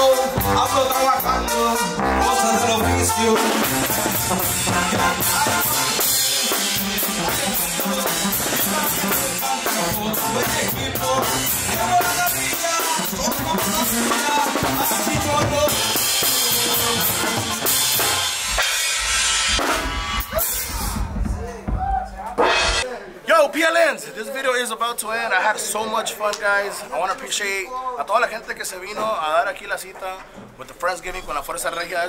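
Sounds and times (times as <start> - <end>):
drum kit playing: 0.0 - 23.0.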